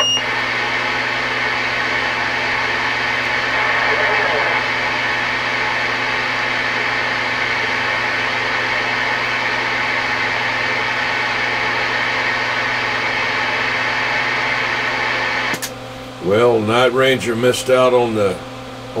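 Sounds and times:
radio static hiss: 2.5 - 5.9.

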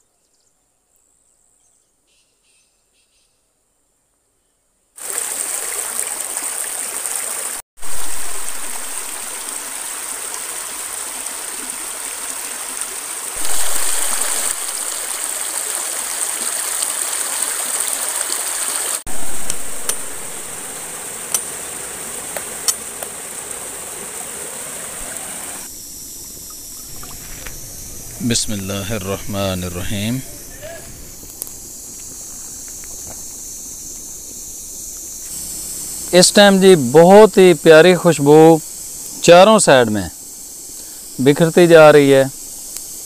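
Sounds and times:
stream rushing over rocks: 5.0 - 25.7.

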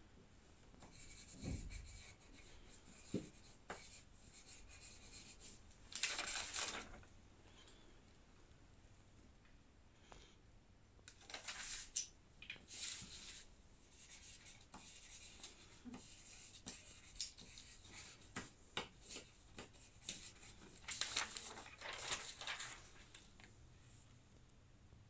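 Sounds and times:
paper rustling: 5.9 - 7.1, 11.2 - 12.1, 12.7 - 13.5, 15.4 - 23.5
pen scratching on paper: 13.9 - 18.3.

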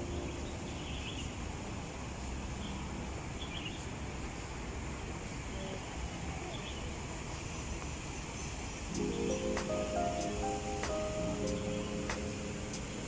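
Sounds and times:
faint bird chirps: 0.0 - 1.5.

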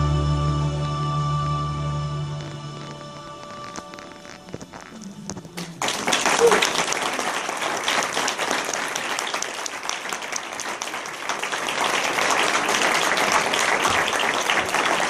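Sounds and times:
audience applauding: 5.5 - 15.0.

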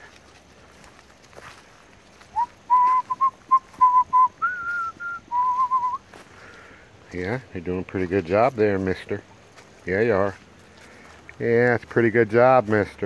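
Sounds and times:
person whistling: 2.4 - 6.0.

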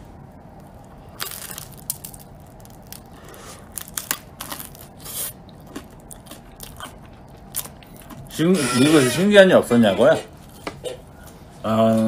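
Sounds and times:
crunchy bites of toasted bread: 0.6 - 8.4.

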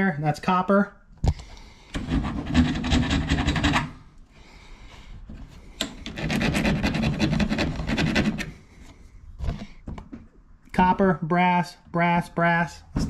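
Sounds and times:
hand file rasping on metal: 6.0 - 8.6.

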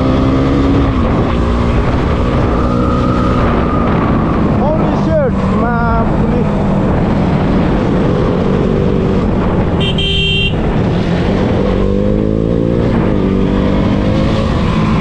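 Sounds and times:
vehicle horn honk: 9.8 - 10.6.

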